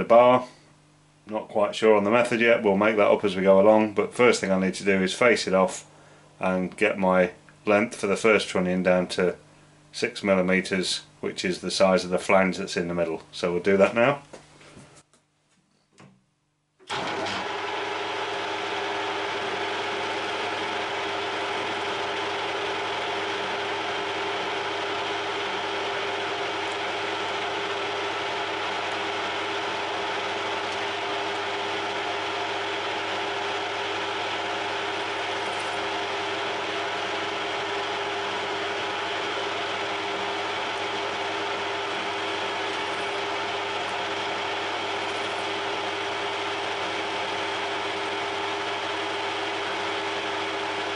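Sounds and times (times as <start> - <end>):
metal lathe whining: 16.9 - 50.9.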